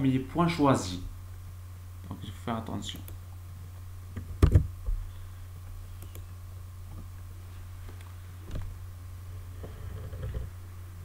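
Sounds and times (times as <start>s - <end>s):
steady low hum: 0.0s - 11.0s
computer mouse clicks: 6.0s - 6.3s.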